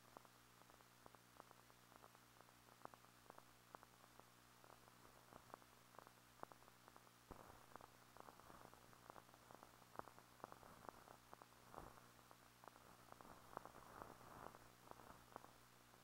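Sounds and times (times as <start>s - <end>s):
faint low hum: 0.0s - 16.0s
film surface clicks and crackle: 0.0s - 16.0s.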